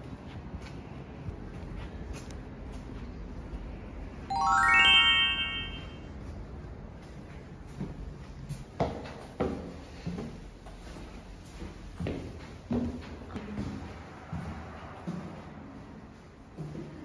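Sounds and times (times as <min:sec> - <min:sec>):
rising run of chime notes: 0:04.3 - 0:06.1
footsteps on stairs: 0:07.1 - 0:17.0.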